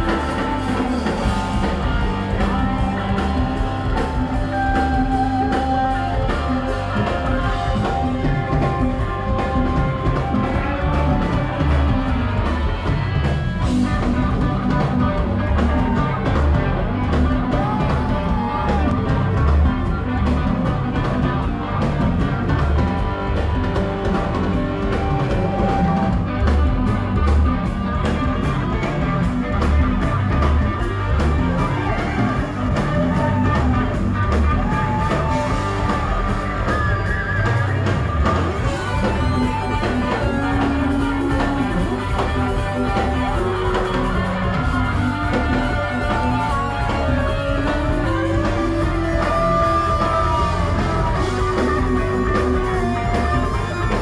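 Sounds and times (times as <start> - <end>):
drums: 0.0 - 54.0
electric guitar bending notes: 0.0 - 54.0
live rock band playing: 0.0 - 54.0.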